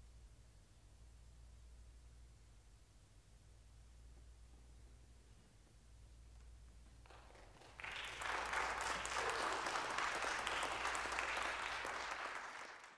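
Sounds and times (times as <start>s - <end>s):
faint low hum: 0.0s - 12.9s
audience applause: 7.1s - 12.9s.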